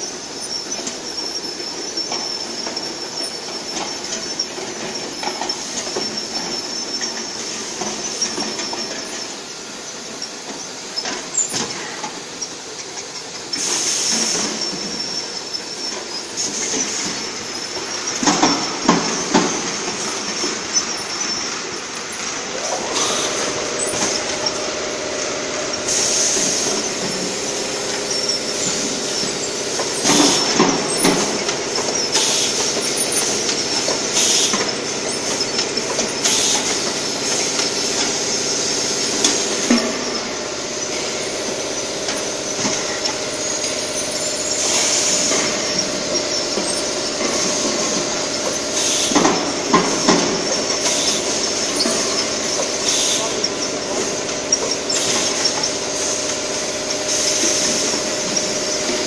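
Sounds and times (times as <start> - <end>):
machine motor hum: 0.0 - 59.0
compressed air hissing: 13.5 - 15.4, 22.1 - 59.0.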